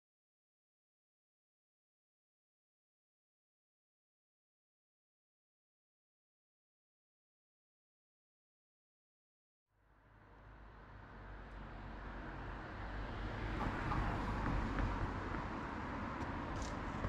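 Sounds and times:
distant road traffic rumble: 10.0s - 17.0s.

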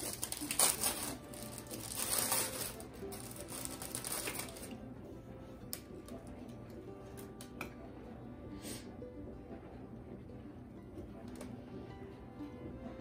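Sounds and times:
plastic wrapper crinkling: 0.0s - 4.8s
soft background music: 0.0s - 13.0s.

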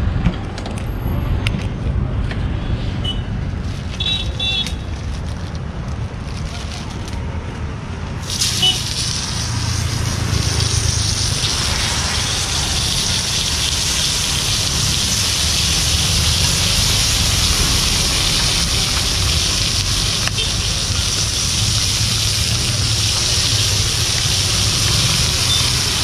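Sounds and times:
fish sizzling on hot griddle: 8.2s - 26.0s.

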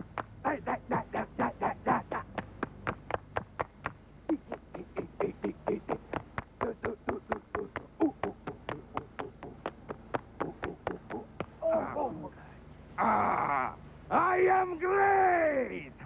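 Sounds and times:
sharp hand claps: 2.1s - 4.0s.

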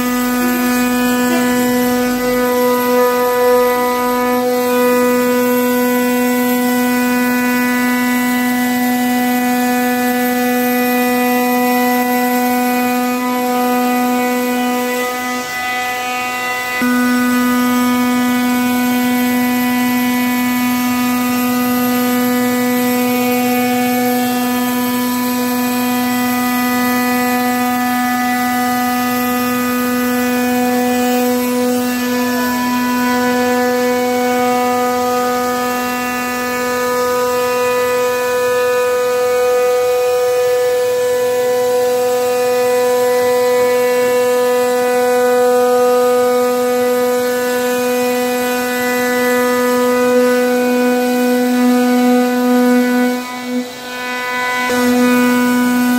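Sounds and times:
router spindle whining: 0.0s - 55.9s.

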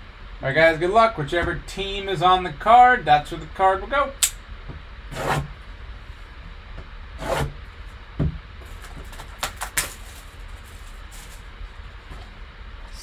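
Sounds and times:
box cutter scraping plastic wrap: 5.1s - 5.5s, 7.2s - 7.6s.

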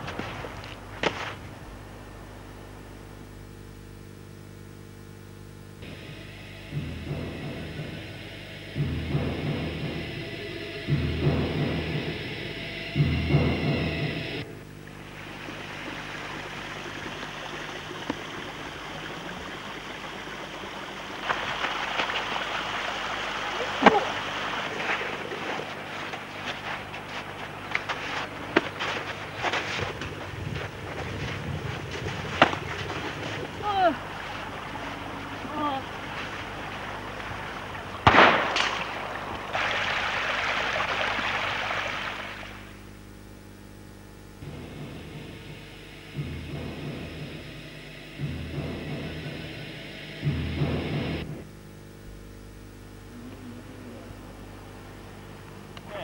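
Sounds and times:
people running on road: 0.0s - 1.7s, 15.6s - 38.1s
steady hiss: 0.0s - 56.0s
outdoor rushing noise: 5.8s - 42.7s
weaker crack: 23.6s - 40.2s
shotgun blast: 38.0s - 39.1s.

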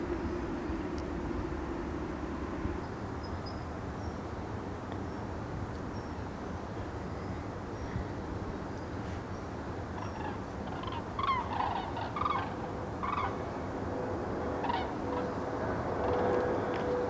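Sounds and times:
jet airliner engine drone: 0.0s - 4.0s, 9.6s - 17.0s
cranes trumpeting calls: 10.0s - 13.6s, 14.4s - 16.8s.

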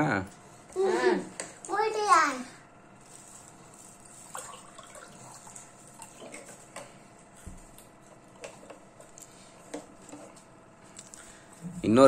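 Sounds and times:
children chewing: 3.5s - 11.8s.

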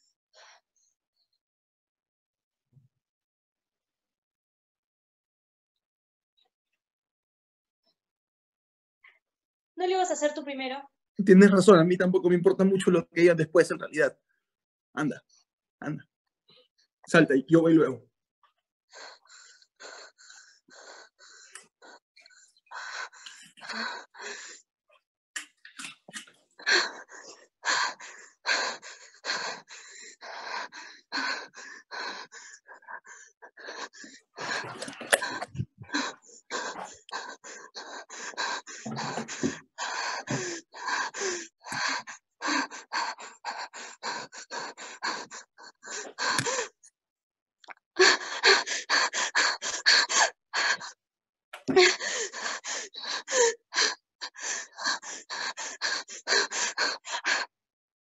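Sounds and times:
woman gasping breaths: 26.6s - 46.8s, 48.0s - 51.0s, 51.6s - 57.5s.

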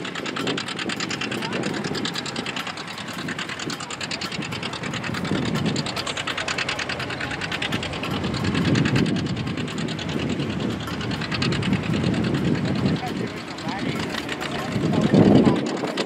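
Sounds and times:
diesel tractor engine under load: 0.0s - 16.0s.

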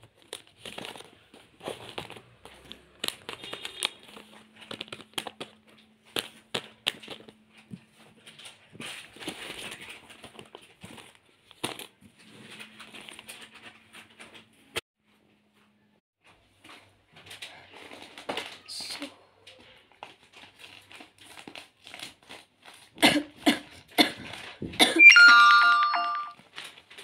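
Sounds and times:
plastic packets rustling: 0.0s - 14.6s, 16.6s - 23.0s, 26.4s - 27.0s.

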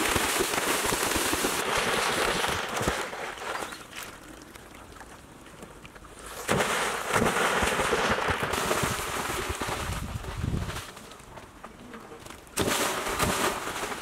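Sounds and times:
water churning and spraying: 0.0s - 11.2s, 12.2s - 14.0s
heavy splash into pool: 6.4s - 10.2s.

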